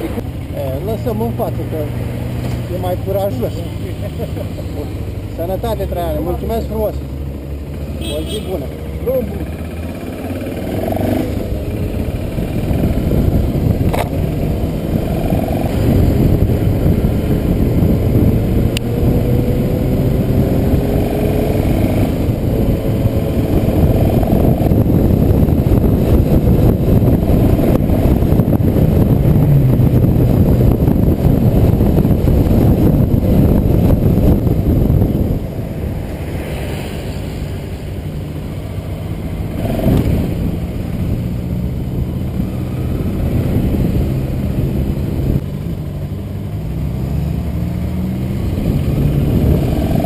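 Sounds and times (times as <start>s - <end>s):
motorcycle engine accelerating: 0.0s - 50.0s
wind noise: 10.4s - 50.0s.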